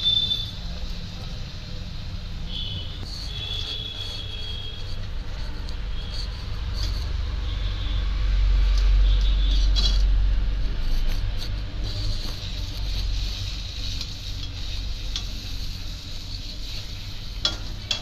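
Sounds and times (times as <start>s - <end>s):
food frying in hot oil: 0.0s - 18.0s.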